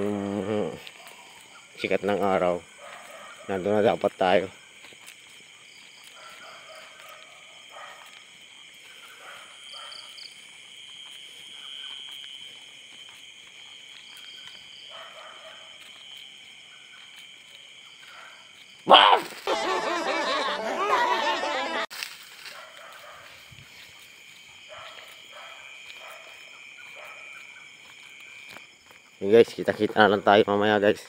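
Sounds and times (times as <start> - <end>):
night insects chirring: 0.0 - 31.0
loud cartoon laughter: 19.4 - 21.9.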